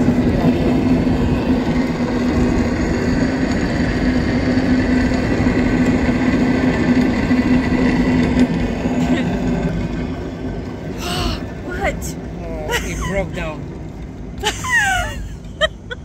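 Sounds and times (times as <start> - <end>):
wind buffeting microphone: 0.0 - 10.7
cable car hum: 0.0 - 16.0.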